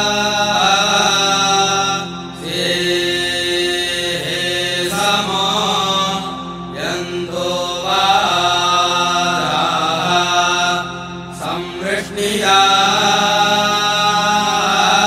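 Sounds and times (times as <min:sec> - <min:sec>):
low drone: 0:00.0 - 0:15.0
person chanting: 0:00.0 - 0:15.0.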